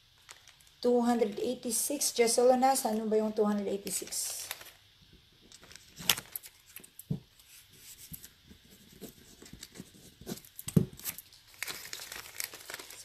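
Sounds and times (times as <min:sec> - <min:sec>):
hands handling small objects: 0:09.0 - 0:13.0.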